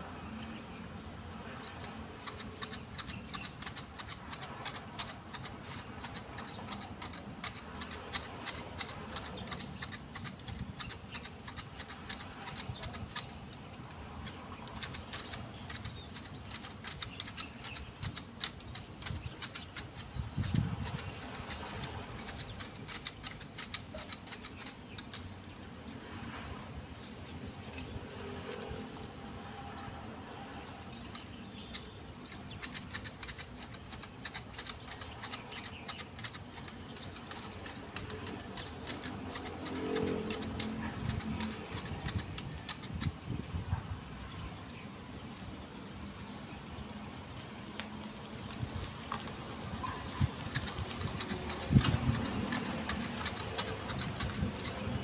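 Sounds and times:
hedge shears snipping: 1.7 - 25.3, 31.0 - 43.4, 50.2 - 55.0.

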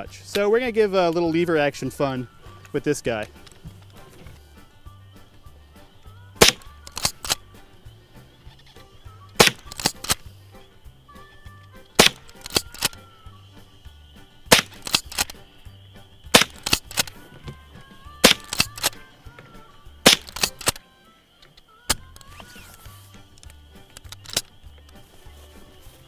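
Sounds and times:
soft background music: 0.0 - 26.0
rifle lever clicks: 6.4 - 7.4, 9.4 - 10.2, 12.0 - 13.0, 14.5 - 15.4, 16.4 - 17.2, 18.2 - 19.0, 20.1 - 20.8, 23.4 - 24.5
rifle shots cracking: 6.4 - 7.5, 9.4 - 10.2, 11.9 - 13.0, 14.5 - 15.5, 16.2 - 17.2, 18.2 - 19.0, 20.0 - 20.8.

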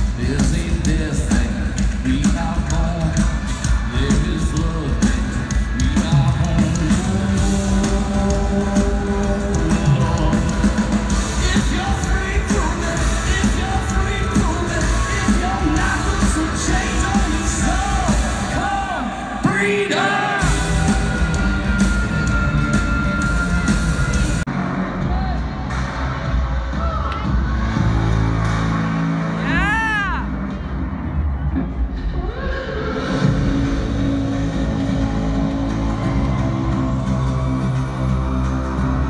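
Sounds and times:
drum beat: 0.0 - 19.1, 20.3 - 24.4
person singing: 0.0 - 24.4
live band playing loudly: 0.0 - 26.6
heavy bass: 0.0 - 39.0.

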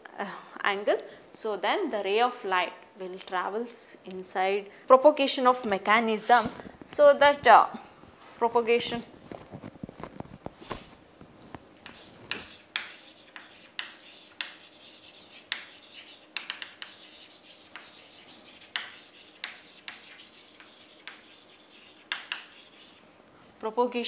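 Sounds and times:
chalk tapping and scratching on blackboard: 11.8 - 23.0.

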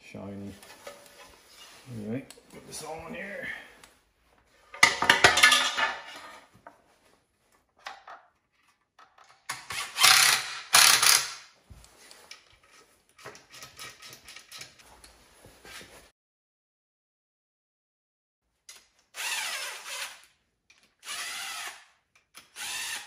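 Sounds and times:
metal parts clinking and scraping: 4.7 - 6.4, 12.3 - 14.9.

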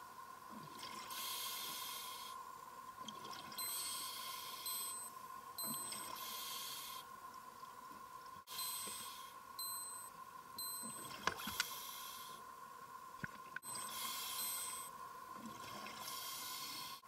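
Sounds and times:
scuba regulator breathing hiss: 1.1 - 2.4, 6.1 - 7.0, 11.6 - 12.4, 13.8 - 14.9, 16.0 - 17.0
steady tone: 4.6 - 6.1, 8.5 - 11.0
bubble clicks and crackles: 13.2 - 13.8.

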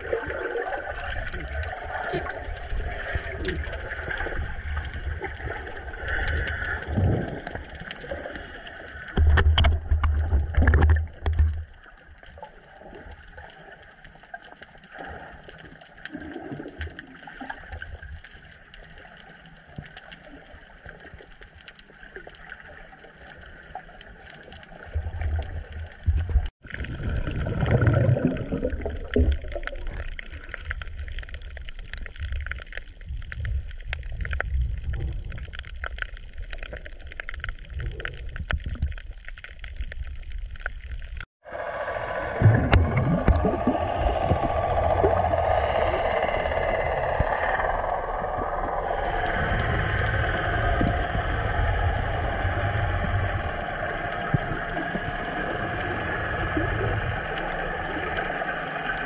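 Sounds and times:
water swishing and gurgling: 0.0 - 59.0
low rumbling water surges: 39.4 - 59.0.

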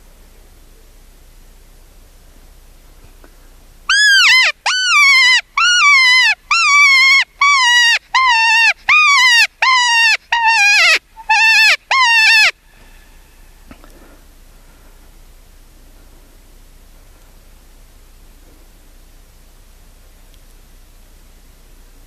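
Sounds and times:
high coyote yelps: 3.9 - 12.6.

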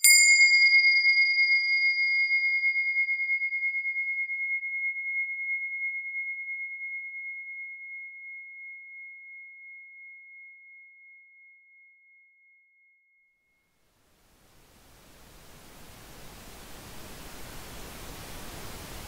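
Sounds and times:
struck bell tone: 0.0 - 13.1.

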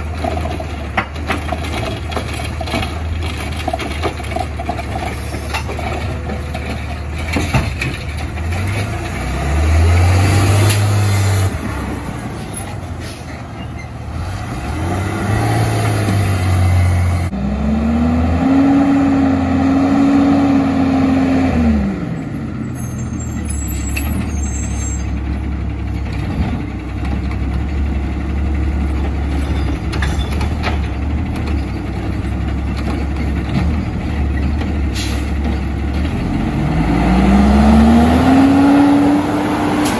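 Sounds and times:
diesel truck engine revving: 0.0 - 29.4, 30.8 - 39.9.

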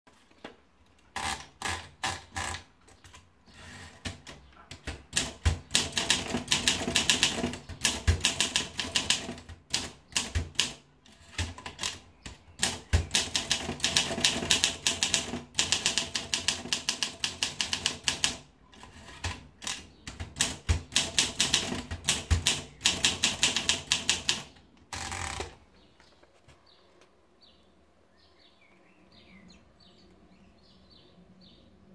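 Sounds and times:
typewriter typing: 1.2 - 25.6.

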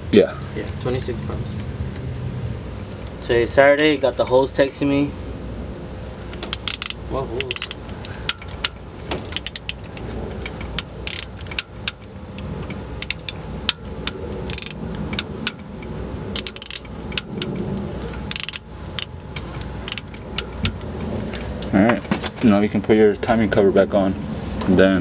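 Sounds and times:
socket wrench ratchet clicking: 6.3 - 20.9.

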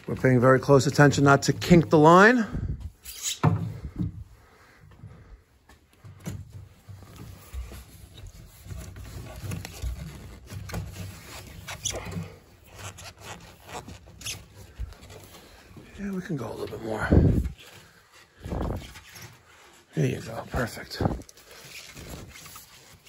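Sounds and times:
tubing scraping through drywall: 6.5 - 23.0.

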